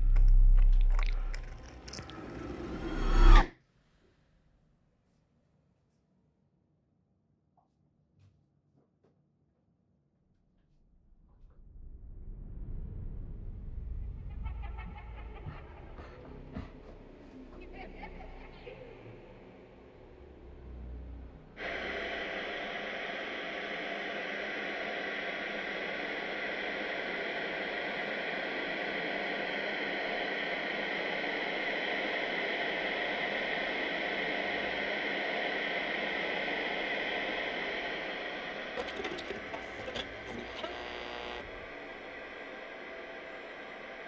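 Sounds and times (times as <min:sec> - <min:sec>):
white noise machine hiss: 0:21.6 - 0:44.0.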